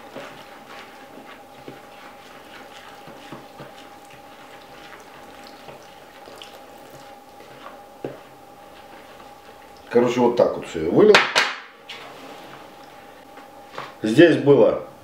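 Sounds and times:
spoon stirring and scraping flour: 0:00.0 - 0:10.1
water trickling into a bowl: 0:03.6 - 0:07.1.

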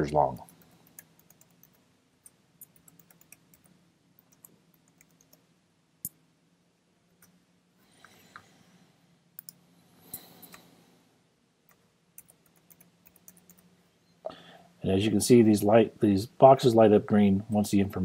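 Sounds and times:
keyboard typing clicks: 0:00.4 - 0:05.4, 0:11.7 - 0:13.7.

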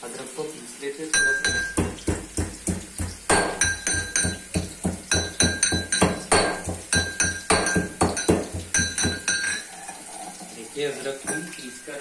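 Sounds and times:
pestle pounding in mortar: 0:01.2 - 0:09.5.

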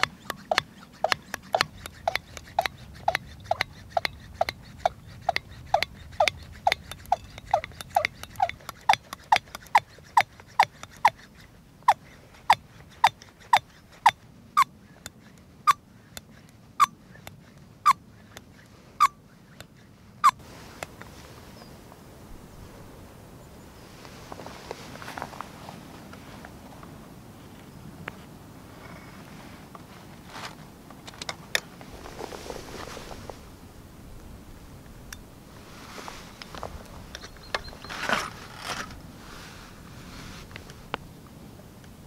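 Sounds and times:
hand pump squeaking: 0:00.0 - 0:20.4.

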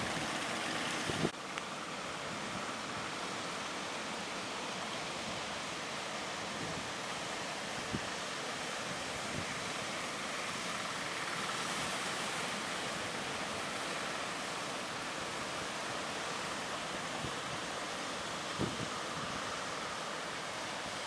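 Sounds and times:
wind buffeting microphone: 0:00.0 - 0:01.4, 0:18.5 - 0:19.5.

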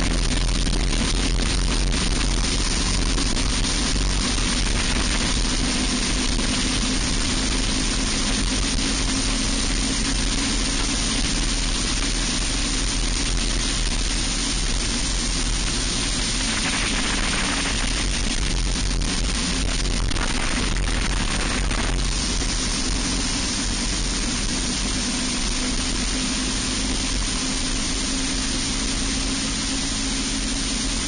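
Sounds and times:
kart engine running: 0:00.0 - 0:31.0
wind rush on microphone: 0:00.0 - 0:31.0.

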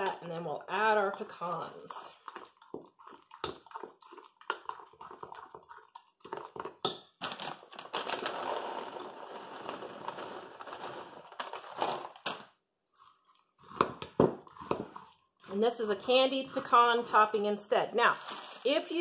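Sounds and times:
nuts poured from a bag: 0:07.3 - 0:12.4, 0:18.2 - 0:18.8.

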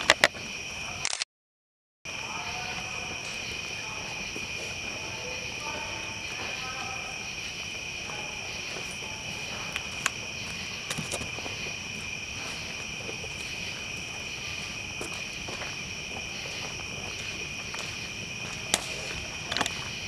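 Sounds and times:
crickets chirping: 0:00.0 - 0:01.1, 0:02.1 - 0:20.0
campfire popping and crackling: 0:09.4 - 0:20.0.

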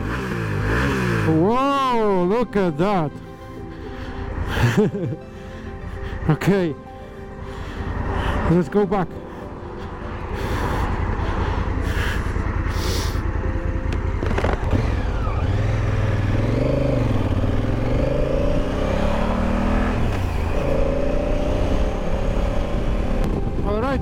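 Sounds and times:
motorcycle engine accelerating: 0:00.0 - 0:02.4, 0:09.5 - 0:24.0.

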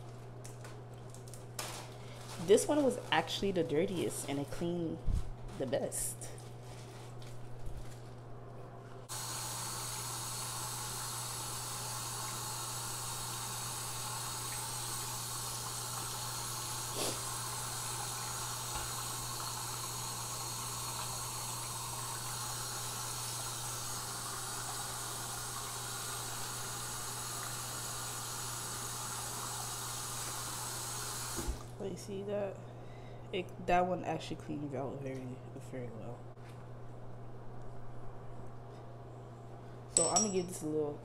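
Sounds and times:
tap water running into sink: 0:09.1 - 0:31.6.

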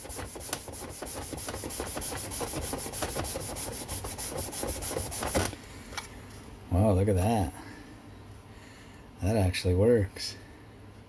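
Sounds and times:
sandpaper scratching on plastic: 0:00.0 - 0:05.5.

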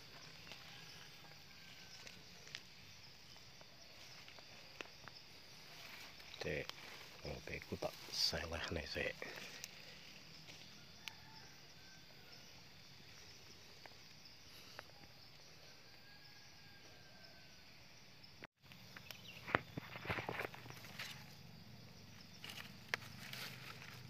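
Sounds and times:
dry leaves rustling: 0:00.0 - 0:10.9, 0:22.4 - 0:24.0
insects chirring: 0:00.0 - 0:24.0.

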